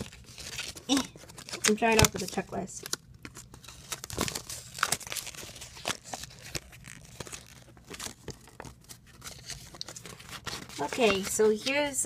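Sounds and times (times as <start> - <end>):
paper and packaging crinkling: 0.0 - 12.0.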